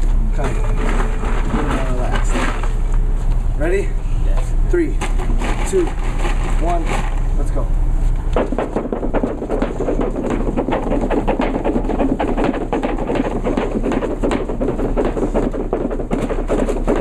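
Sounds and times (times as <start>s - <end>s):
jump ropes slapping gym floor: 8.3s - 17.0s.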